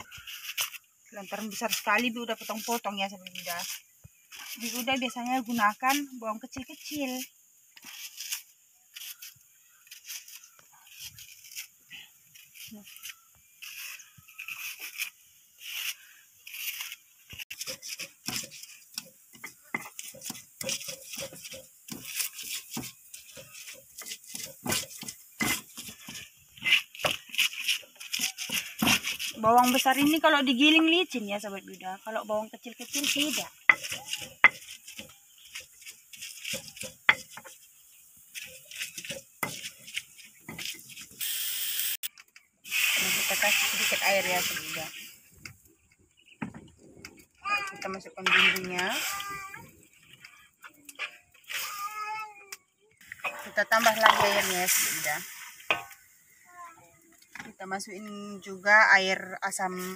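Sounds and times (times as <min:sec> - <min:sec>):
knife slicing onion: 0:12.3 - 0:30.3, 0:32.8 - 0:37.6, 0:38.3 - 0:41.2
stone pestle grinding in mortar: 0:15.7 - 0:30.3, 0:32.8 - 0:37.7, 0:38.3 - 0:41.2, 0:53.2 - 0:54.7
water boiling in a wok: 0:42.6 - 0:45.2.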